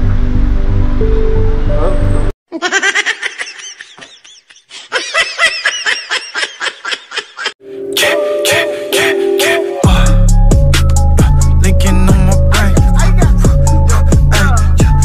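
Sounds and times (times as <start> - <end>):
music: 0.2 - 2.3, 7.6 - 15.0
man laughing manically: 2.5 - 7.6.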